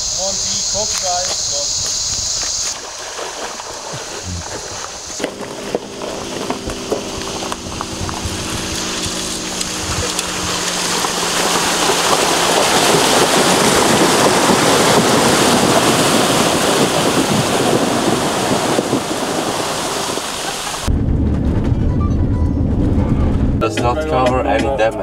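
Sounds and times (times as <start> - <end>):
river water rushing around car: 2.8 - 20.9.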